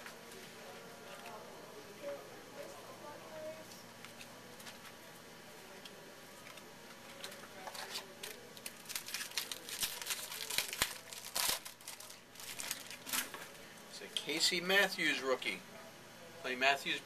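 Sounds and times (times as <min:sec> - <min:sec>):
foil wrapper crinkling and tearing: 0:07.2 - 0:13.6.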